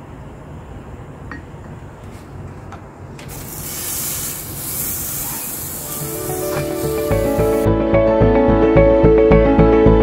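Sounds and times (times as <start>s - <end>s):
food sizzling on grill: 3.3s - 7.7s.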